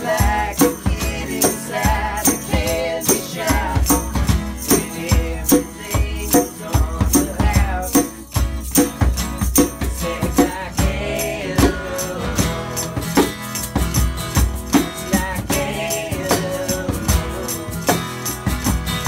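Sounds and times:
person singing: 0:00.0 - 0:08.2, 0:10.0 - 0:13.4, 0:15.1 - 0:18.1
djembe drum beats: 0:00.0 - 0:19.0
strummed acoustic guitar: 0:00.0 - 0:19.0
tambourine shaking: 0:00.0 - 0:19.0.

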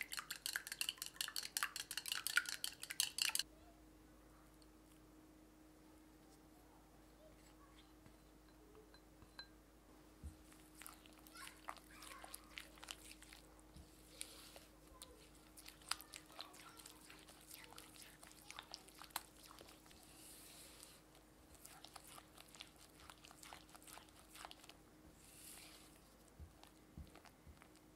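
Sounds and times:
spatula mixing batter clicks: 0:00.0 - 0:03.4.

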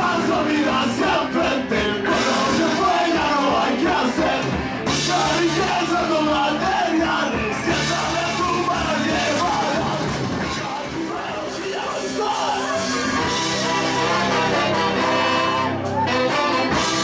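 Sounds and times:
ska-punk band with horns: 0:00.0 - 0:17.0
shouted vocal: 0:05.0 - 0:16.3.

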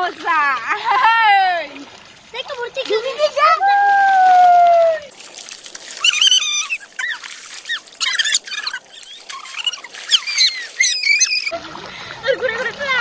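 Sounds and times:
comic high-pitched squeaks: 0:06.0 - 0:11.5.

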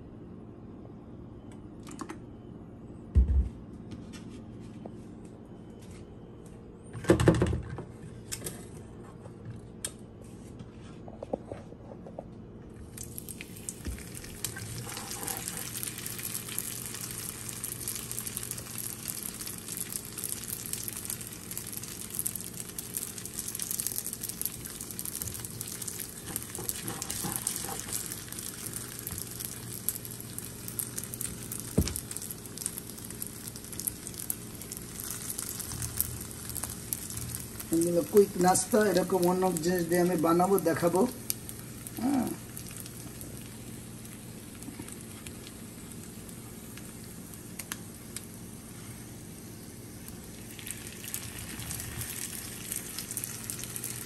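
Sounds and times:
pastries sizzling in hot oil: 0:12.9 - 0:54.0.

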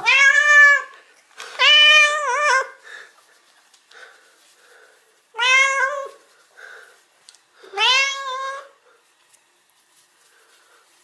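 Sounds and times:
cat meowing loudly: 0:00.0 - 0:00.9, 0:01.6 - 0:02.7, 0:05.4 - 0:06.2, 0:07.7 - 0:08.7.

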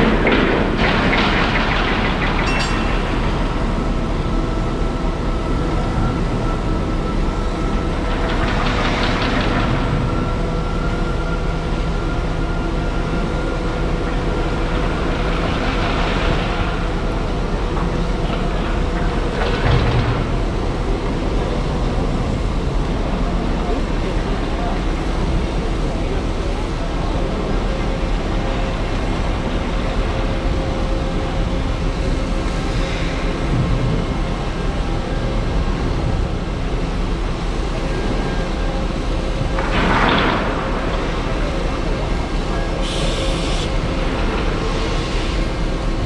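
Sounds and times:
machinery rumble with hum: 0:00.0 - 0:46.0
hissing noise bursts: 0:42.8 - 0:43.7.

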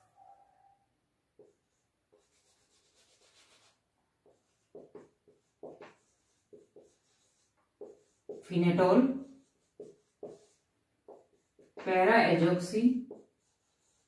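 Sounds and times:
marker pen squeaking on whiteboard: 0:04.3 - 0:08.5, 0:09.2 - 0:12.0, 0:13.1 - 0:14.0.

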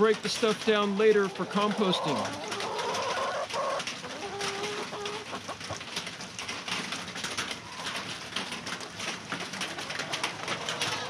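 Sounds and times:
rain on a corrugated roof: 0:00.0 - 0:11.0
chickens calling softly: 0:00.7 - 0:06.0, 0:07.6 - 0:11.0.

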